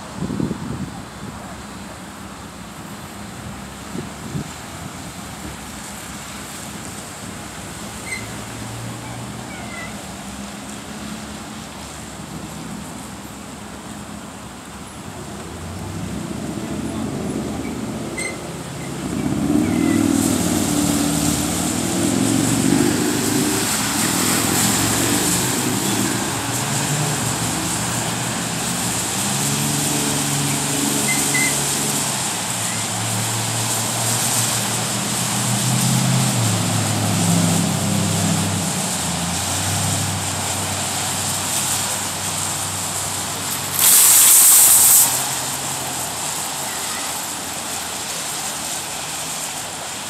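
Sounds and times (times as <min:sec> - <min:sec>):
loud rush of noise: 0:00.0 - 0:50.0
tyre and traffic hiss: 0:00.0 - 0:50.0
vehicle engines pulling away: 0:15.1 - 0:50.0.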